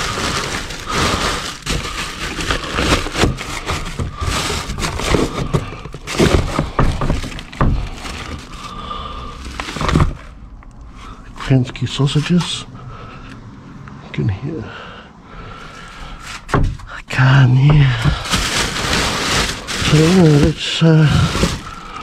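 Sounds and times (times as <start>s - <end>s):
plastic packaging crinkling: 0.0s - 10.3s, 17.8s - 22.0s
knocks of items shifted: 0.0s - 10.4s, 15.8s - 22.0s.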